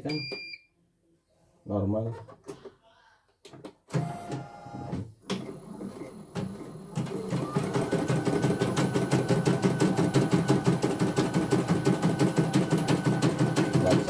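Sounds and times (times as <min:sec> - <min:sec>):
embroidery machine stitching: 0:05.3 - 0:14.0.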